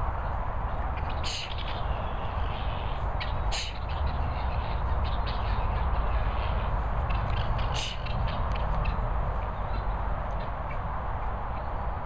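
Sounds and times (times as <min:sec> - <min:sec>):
steady low rumble: 0:00.0 - 0:12.0
guineafowl harsh calls: 0:01.0 - 0:06.7.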